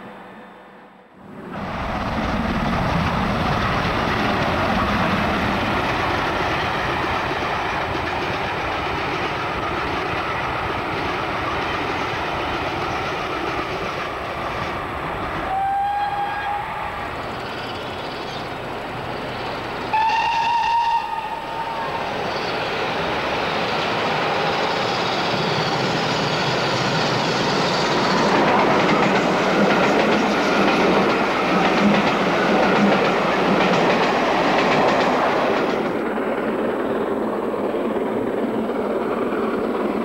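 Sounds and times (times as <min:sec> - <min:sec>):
train wheels clattering on rails: 0:01.6 - 0:14.8, 0:22.2 - 0:40.0
steam whistle: 0:15.4 - 0:17.0, 0:19.9 - 0:22.0.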